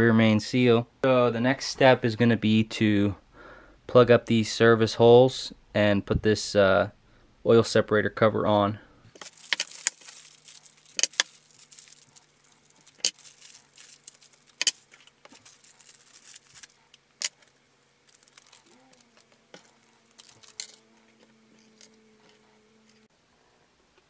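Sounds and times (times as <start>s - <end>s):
plastic bags crinkling: 9.1s - 23.0s
metal parts clicking on workbench: 14.6s - 14.8s.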